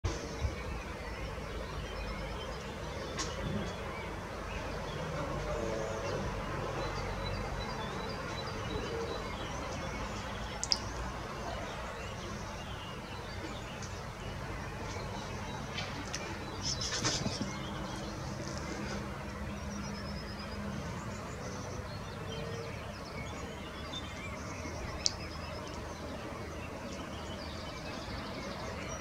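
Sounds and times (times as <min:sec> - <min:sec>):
distant birdsong: 0:00.0 - 0:29.0
rustling noise: 0:15.7 - 0:19.1.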